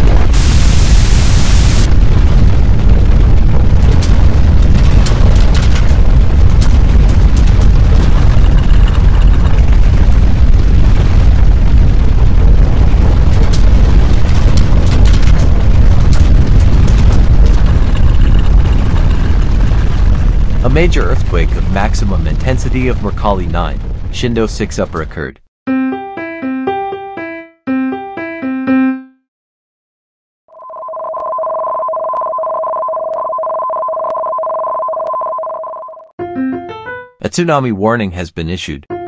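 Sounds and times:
static hiss: 0.0 - 1.9
earthquake rumble: 0.0 - 25.2
crackles and clicks: 0.0 - 25.3, 30.6 - 36.1.

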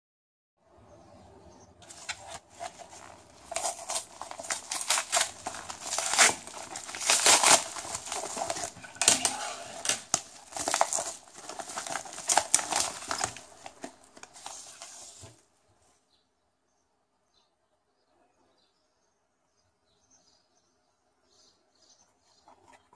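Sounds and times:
paper envelope crinkling and ripping: 1.8 - 15.4.

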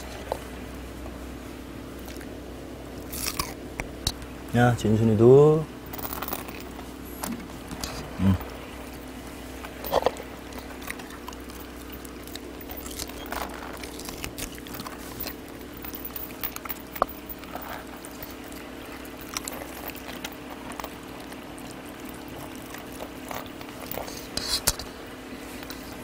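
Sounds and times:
faint hum: 0.0 - 26.0
dogs chewing and licking: 7.8 - 26.0.

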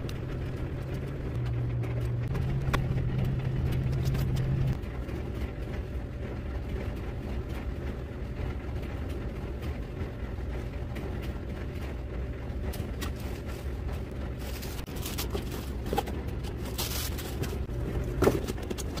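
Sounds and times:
low background rumble: 0.0 - 19.0
plastic and cardboard rustle: 12.7 - 19.0.

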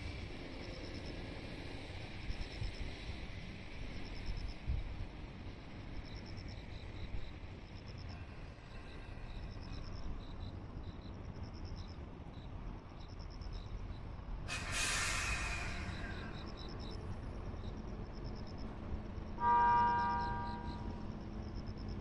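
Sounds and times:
compressed air hiss from locomotive: 14.4 - 16.6.

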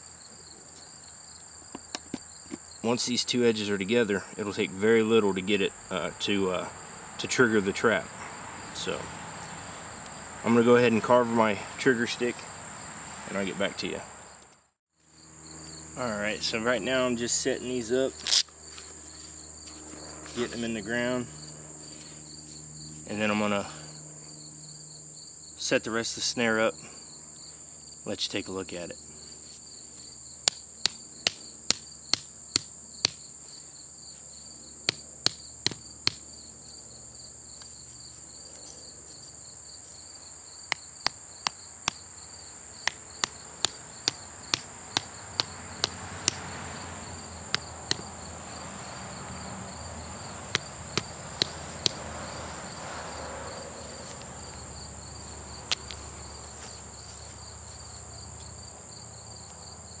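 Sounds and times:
high insect drone: 0.0 - 60.0
hatchet knocking stakes: 30.4 - 33.2, 34.9 - 36.2, 40.7 - 42.0, 42.8 - 46.5, 47.5 - 48.1, 50.5 - 52.0.

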